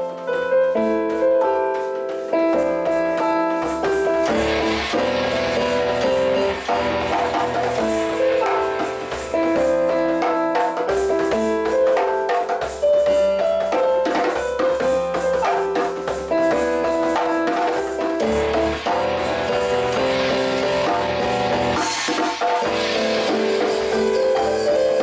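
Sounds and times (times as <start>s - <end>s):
piano melody: 0.0s - 25.0s
djembe strokes: 2.5s - 25.0s.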